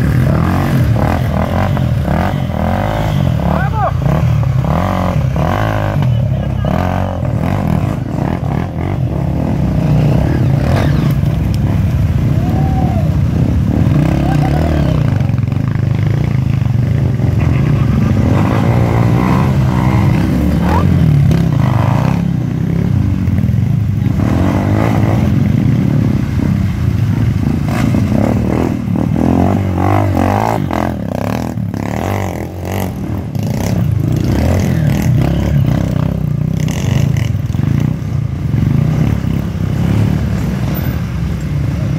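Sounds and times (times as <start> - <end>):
engine revving: 0.0 - 12.0, 17.1 - 23.0.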